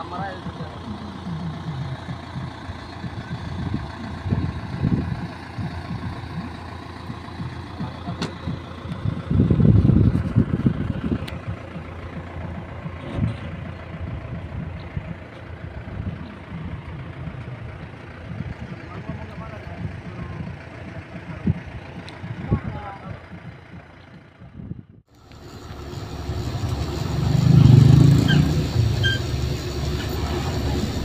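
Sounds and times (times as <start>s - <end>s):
heavy diesel engines idling: 0.0s - 31.0s.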